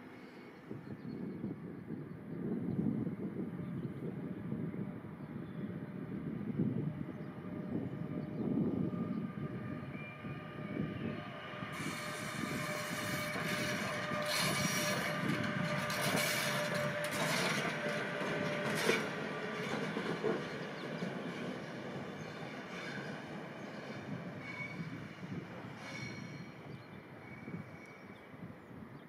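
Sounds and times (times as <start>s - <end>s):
train wheels rumbling on rails: 6.5s - 28.2s
high wheel squeal: 9.4s - 19.1s, 24.4s - 28.1s.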